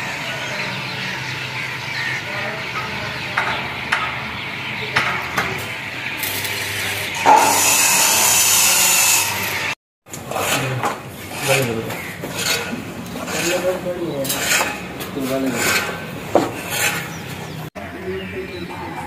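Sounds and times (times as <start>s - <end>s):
metal scraping: 2.0s - 17.7s
angle grinder on steel: 6.2s - 17.6s.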